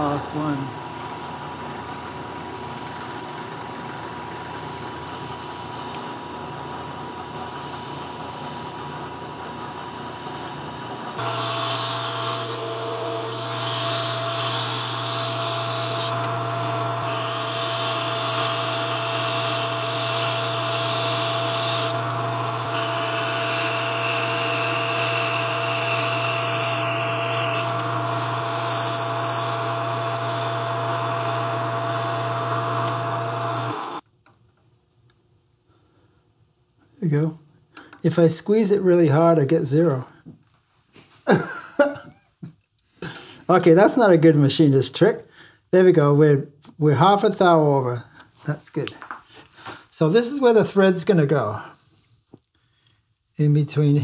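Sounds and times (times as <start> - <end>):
metal lathe motor hum: 0.0 - 34.0
milling machine cutting metal: 6.5 - 34.0
lathe cutting tool hiss: 11.2 - 34.0.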